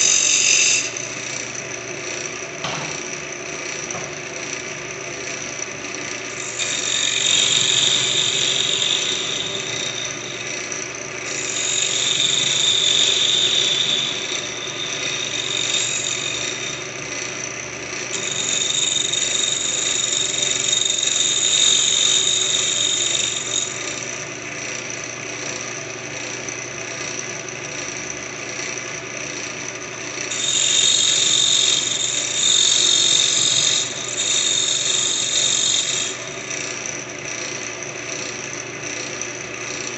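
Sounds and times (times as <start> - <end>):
wood lathe humming: 0.0 - 39.9
turning tool hissing on wood: 6.4 - 16.8, 30.3 - 36.2.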